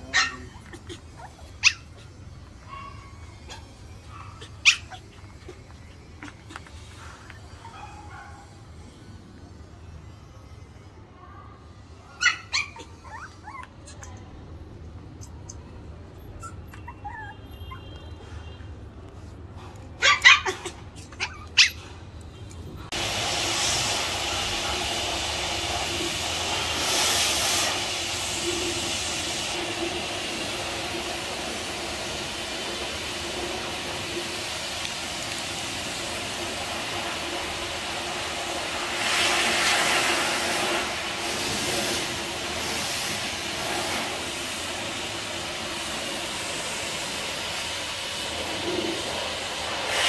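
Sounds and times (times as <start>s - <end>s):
puppy barking: 0.0s - 6.3s, 7.5s - 8.6s, 12.1s - 14.1s, 16.3s - 18.1s, 20.0s - 21.9s
steady noisy hiss: 22.9s - 50.0s.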